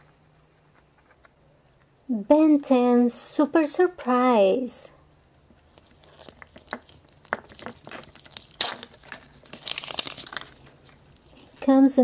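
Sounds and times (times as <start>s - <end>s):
wrapper crinkling and tearing: 5.7s - 11.6s.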